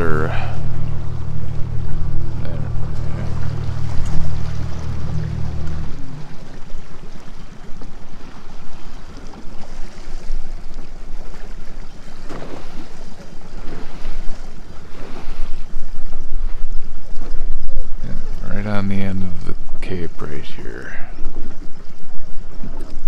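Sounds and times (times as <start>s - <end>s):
low steady hum: 0.0s - 16.8s
wind buffeting microphone: 0.0s - 20.2s
water lapping along boat hull: 0.0s - 23.0s.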